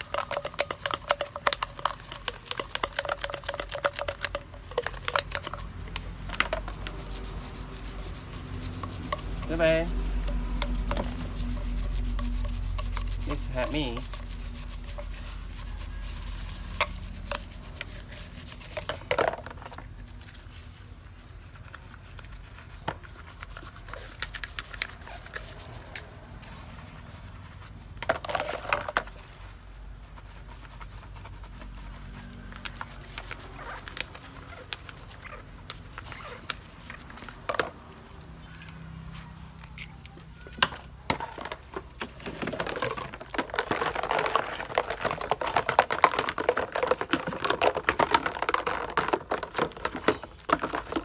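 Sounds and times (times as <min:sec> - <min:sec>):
scrubbing: 0:00.0 - 0:38.1, 0:41.0 - 0:51.0
baby bottles clicking: 0:40.6 - 0:51.0.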